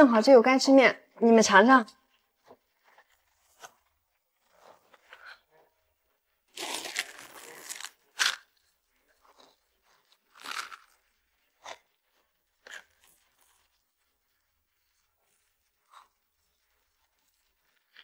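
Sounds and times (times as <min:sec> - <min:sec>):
plastic wrapper tearing and rustling: 0:06.5 - 0:08.7
crunching bites into dry noodles: 0:06.5 - 0:13.8.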